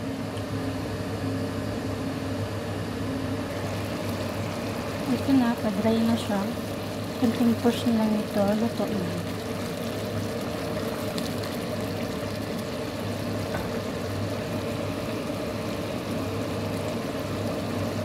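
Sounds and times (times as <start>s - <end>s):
steady low hum: 0.0s - 18.0s
pot of food boiling: 3.5s - 18.0s.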